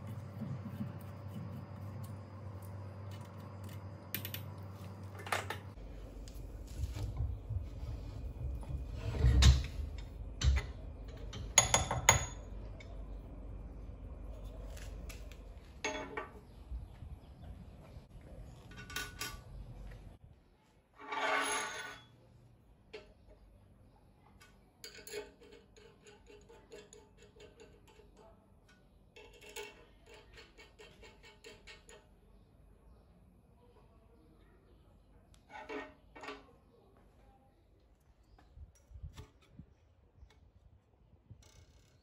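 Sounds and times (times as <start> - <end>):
low steady hum: 0.0 - 20.6.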